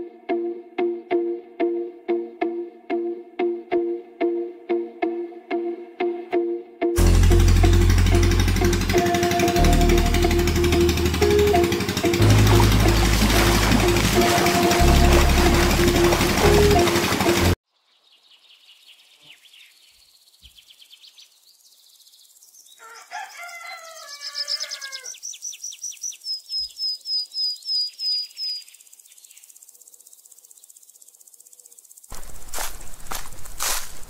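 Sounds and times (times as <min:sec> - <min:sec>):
footsteps: 0:12.2 - 0:17.6, 0:32.1 - 0:34.0
birds chirping and trilling: 0:17.7 - 0:30.8
rooster crowing: 0:22.8 - 0:25.2.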